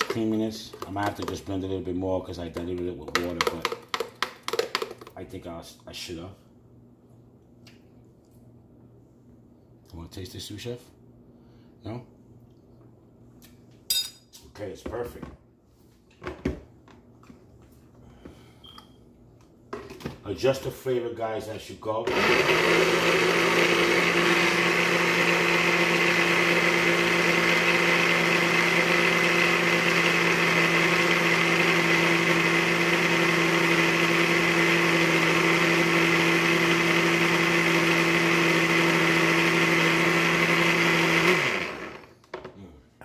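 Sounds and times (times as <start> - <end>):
blender motor whining: 22.0 - 42.1.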